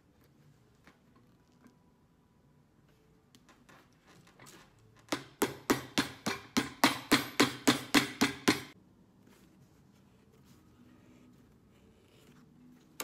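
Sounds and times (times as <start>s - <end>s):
hammer tapping a boot sole: 5.1s - 8.8s.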